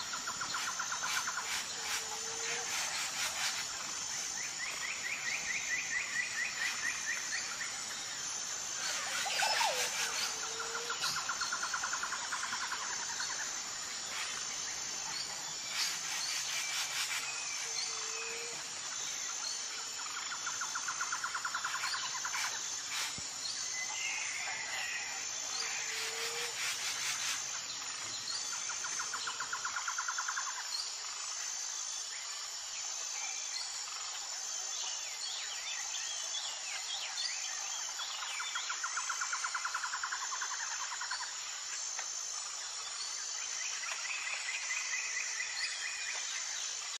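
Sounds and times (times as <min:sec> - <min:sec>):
insect chirring: 0:00.0 - 0:32.6.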